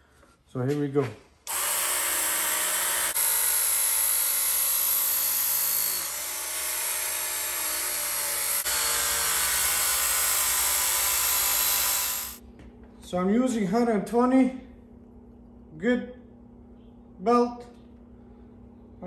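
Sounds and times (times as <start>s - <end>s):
belt sharpener grinding steel: 1.5s - 12.4s
steady motor whine: 1.5s - 12.4s.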